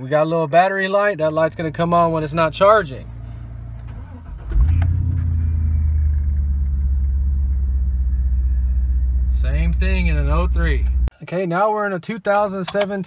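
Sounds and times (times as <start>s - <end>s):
truck engine revving and idling: 1.2s - 11.1s.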